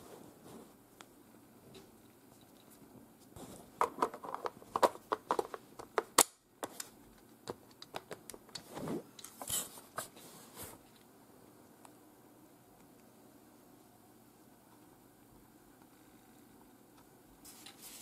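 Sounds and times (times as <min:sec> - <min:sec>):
soft rubbing and handling: 0:00.0 - 0:01.1, 0:01.7 - 0:05.6, 0:08.5 - 0:11.1, 0:17.4 - 0:18.0.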